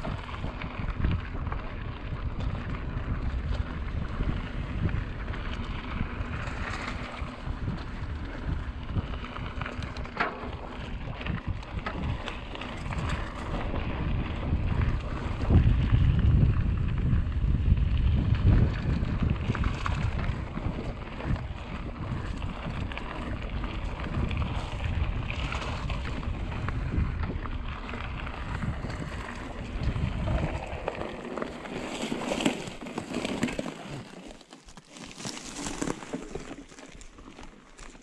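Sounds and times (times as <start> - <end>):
wind buffeting microphone: 0.0 - 32.8
bike tyres rattling over dirt: 0.0 - 38.0.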